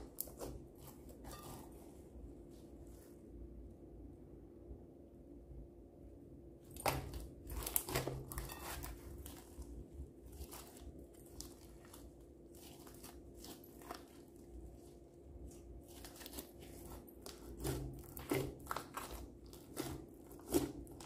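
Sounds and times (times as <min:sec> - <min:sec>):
hands squishing crunchy slime: 0:00.0 - 0:02.1, 0:06.7 - 0:21.0.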